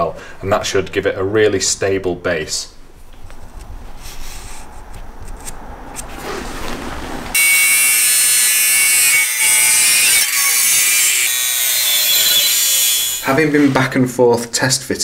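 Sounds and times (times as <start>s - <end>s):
angle grinder cutting metal: 7.4s - 13.4s.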